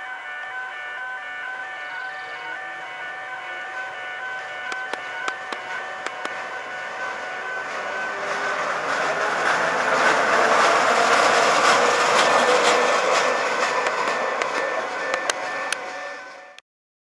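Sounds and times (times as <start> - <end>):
train wheels rolling on rails: 4.3 - 16.6
clicks over the track: 4.7 - 6.4.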